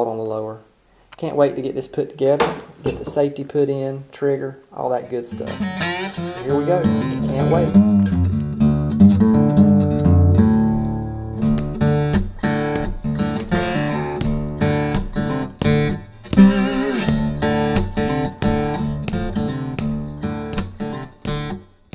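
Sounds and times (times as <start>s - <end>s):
guitar picking and strumming: 5.3s - 21.9s.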